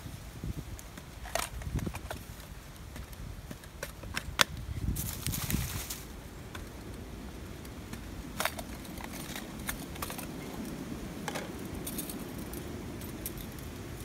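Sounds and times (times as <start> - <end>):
metallic clicks and clinks: 11.3 - 14.0.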